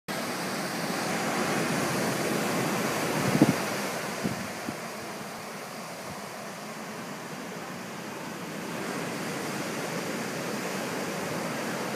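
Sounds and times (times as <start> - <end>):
ocean surf breaking: 0.1 - 11.9
low thumps of wind buffeting: 0.7 - 7.0
wind on microphone: 1.5 - 4.9.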